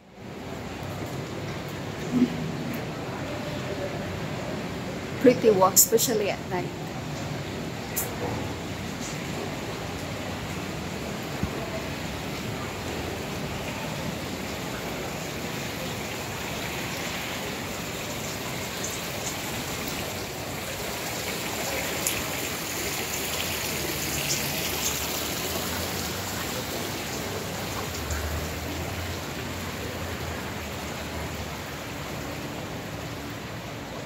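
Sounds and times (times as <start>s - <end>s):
running water hissing: 12.4s - 30.1s.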